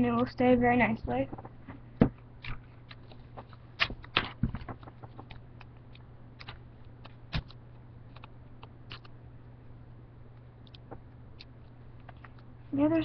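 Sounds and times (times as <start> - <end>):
low steady hum: 0.0 - 13.0
paper and tape crackling: 2.4 - 9.2.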